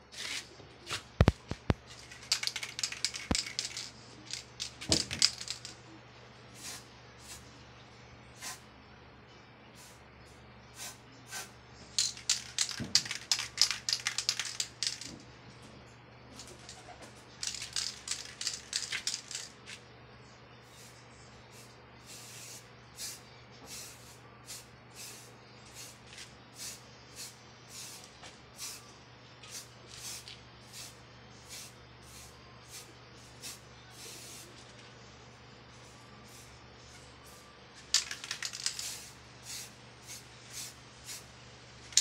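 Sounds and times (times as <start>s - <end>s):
spray-paint can hissing spurts: 17.4s - 19.5s, 31.5s - 34.4s, 38.0s - 41.2s.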